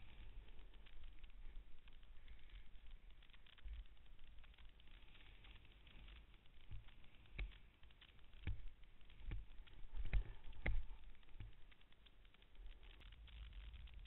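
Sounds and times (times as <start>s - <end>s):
snowboard knocking and scraping: 8.4s - 11.7s.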